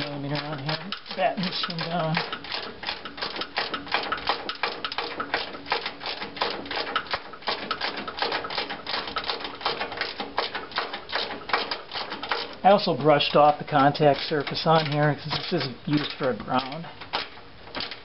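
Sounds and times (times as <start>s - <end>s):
ratchet clicking: 13.2s - 18.0s.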